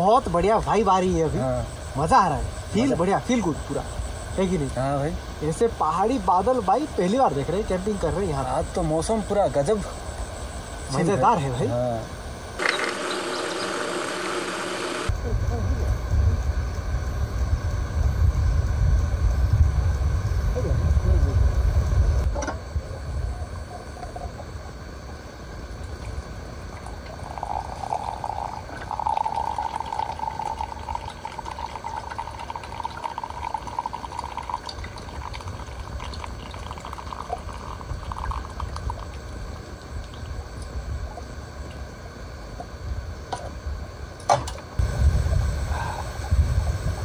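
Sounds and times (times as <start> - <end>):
liquid pouring into container: 25.9 - 40.4.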